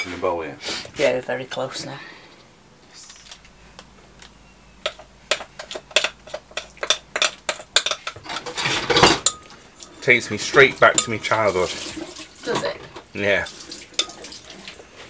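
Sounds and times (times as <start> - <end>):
metal spoon scraping glass bowl: 4.9 - 11.9.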